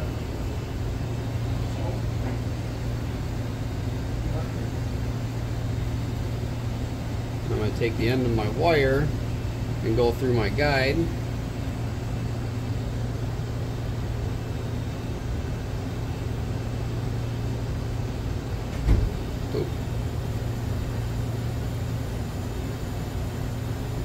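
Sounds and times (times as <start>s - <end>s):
low machine hum: 0.0s - 24.0s.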